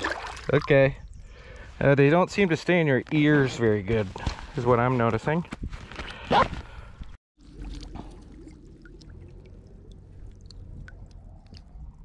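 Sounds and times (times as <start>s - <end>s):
lake water lapping: 7.4s - 12.0s.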